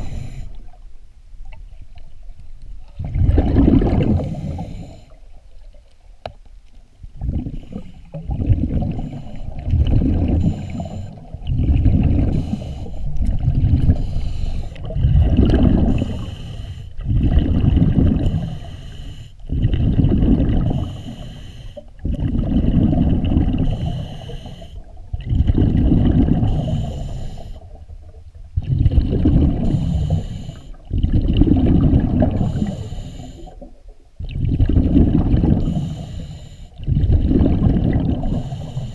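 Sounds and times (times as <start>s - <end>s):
diver breathing through regulator: 0.0s - 0.7s, 3.8s - 5.2s, 7.5s - 13.2s, 13.8s - 17.2s, 18.0s - 19.6s, 20.4s - 22.0s, 22.9s - 24.9s, 26.1s - 27.8s, 29.4s - 30.9s, 32.0s - 33.7s, 35.3s - 37.1s, 38.0s - 38.9s
exhaled bubbles rumbling: 0.0s - 6.2s, 7.0s - 38.9s.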